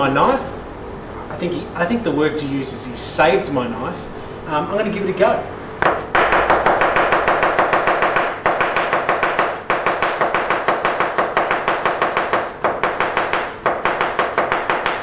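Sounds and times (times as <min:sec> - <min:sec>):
knife chopping on cutting board: 0:05.8 - 0:15.0.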